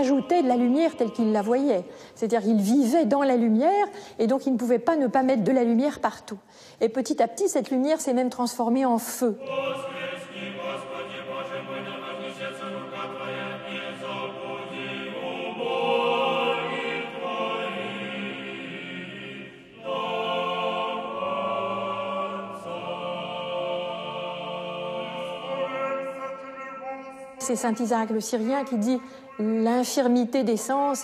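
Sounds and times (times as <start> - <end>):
choir singing chant: 0.0 - 2.4, 9.2 - 28.8.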